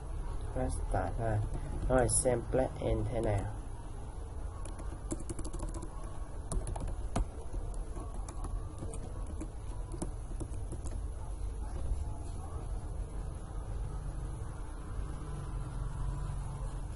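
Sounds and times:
keyboard typing: 0:04.5 - 0:11.2.

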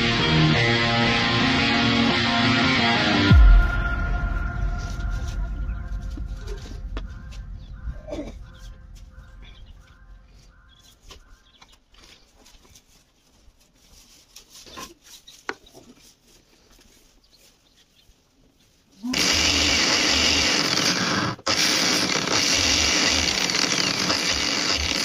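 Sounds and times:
angle grinder grinding metal: 0:19.1 - 0:25.0.

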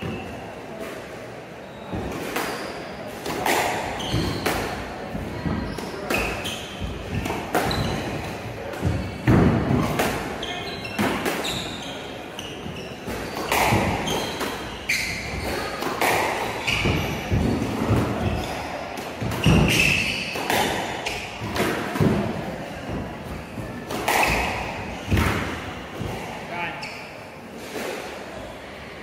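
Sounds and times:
squash ball hitting racquets and walls: 0:00.0 - 0:26.5
shoes squeaking on wooden floor: 0:03.8 - 0:09.3, 0:10.4 - 0:21.5.

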